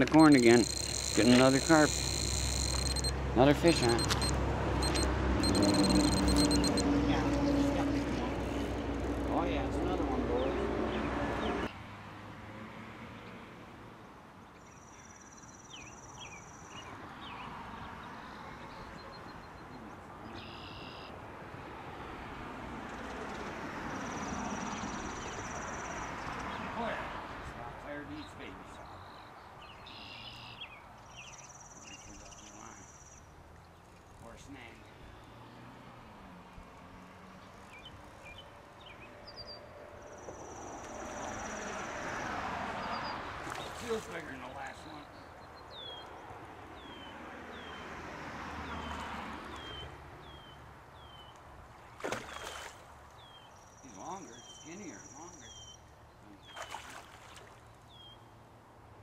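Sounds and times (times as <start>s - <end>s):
bird chirps: 0.0s - 3.1s, 3.8s - 6.8s, 18.3s - 21.1s, 28.2s - 33.2s, 53.2s - 56.7s
small birds chirping: 0.0s - 3.1s, 27.8s - 35.4s, 48.6s - 58.3s
outdoor background noise: 0.0s - 59.0s
high thin buzz: 0.2s - 3.1s
high fast insect trill: 0.4s - 3.1s.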